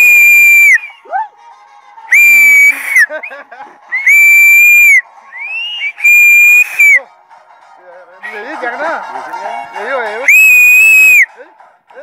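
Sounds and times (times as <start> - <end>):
shrill whistle blasts: 0.0 - 1.0, 2.1 - 3.1, 4.0 - 7.0, 10.3 - 11.3.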